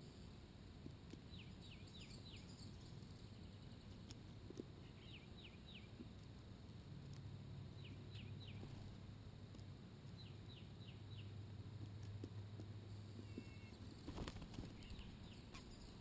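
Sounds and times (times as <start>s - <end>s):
low steady hum: 0.0s - 16.0s
bird chirping: 1.3s - 4.2s, 4.8s - 6.2s, 7.7s - 8.9s, 10.1s - 11.4s, 12.9s - 16.0s.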